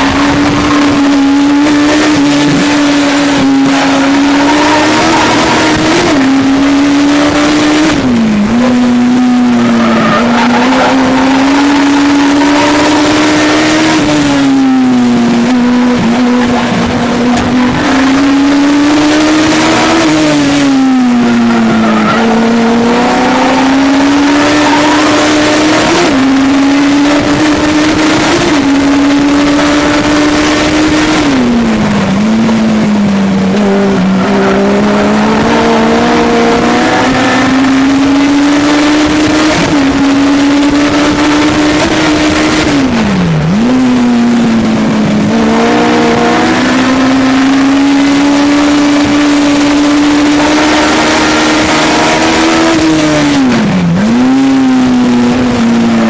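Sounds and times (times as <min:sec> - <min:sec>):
race car engine revving: 0:00.0 - 0:56.0.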